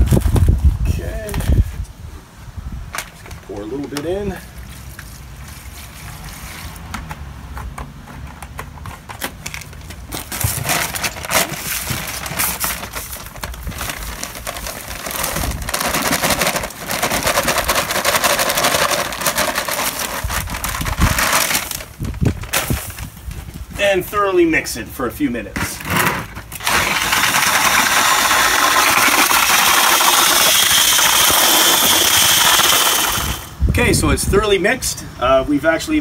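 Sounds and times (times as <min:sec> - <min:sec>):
paper bag crinkling: 0:09.3 - 0:23.6, 0:25.8 - 0:33.5
powder rushing into bucket: 0:10.2 - 0:23.2, 0:26.2 - 0:33.6
liquid pouring into bucket: 0:26.6 - 0:33.5.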